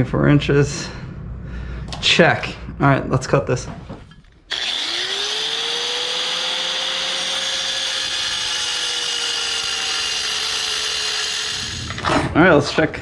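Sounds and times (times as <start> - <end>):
angle grinder cutting stone: 4.5 - 12.0.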